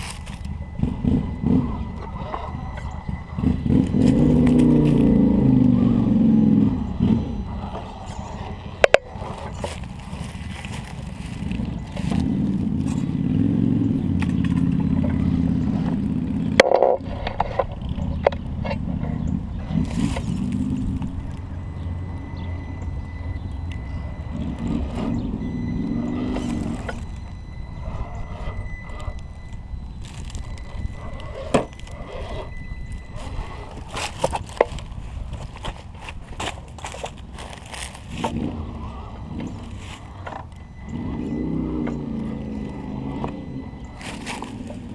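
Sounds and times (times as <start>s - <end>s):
high drivetrain whine: 0.0s - 44.9s
toy car electric motor droning: 0.0s - 44.9s.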